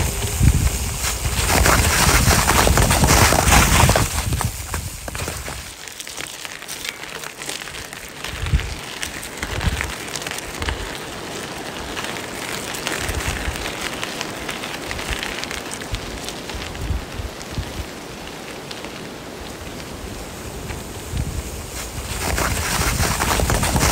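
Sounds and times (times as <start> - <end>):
fine crackling patter: 0.0 - 23.9.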